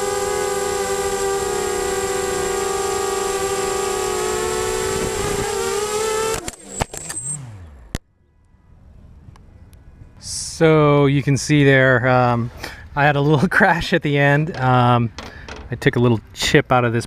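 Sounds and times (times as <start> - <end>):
drone motors whining: 0.0 - 8.0.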